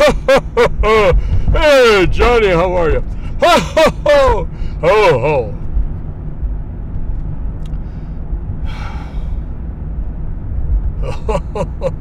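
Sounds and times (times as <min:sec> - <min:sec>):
car cabin engine and road rumble: 0:00.0 - 0:12.0
man's voice: 0:01.0 - 0:05.6
breath: 0:07.8 - 0:09.4.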